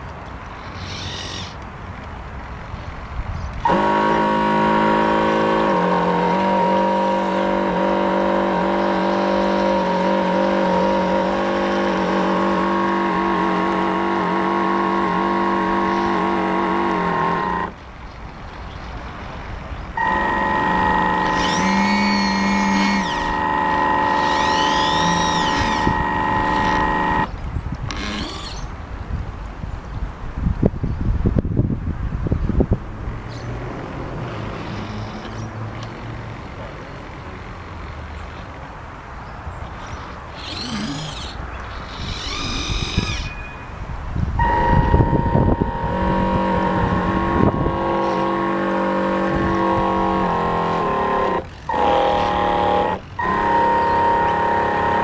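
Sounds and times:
model boat motor whining: 0:00.6 - 0:01.6, 0:03.6 - 0:17.8, 0:20.0 - 0:28.8, 0:39.8 - 0:43.4, 0:44.2 - 0:55.0.

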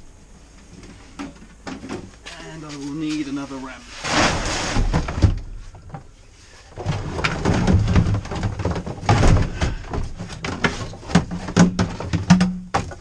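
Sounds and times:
clatters and thumps: 0:04.0 - 0:06.1, 0:06.7 - 0:13.0.

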